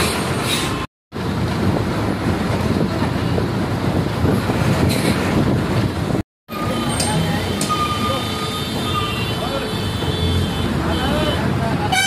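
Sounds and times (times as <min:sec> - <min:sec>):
bus engine drone: 0:00.0 - 0:09.6
road and traffic noise: 0:00.0 - 0:12.0.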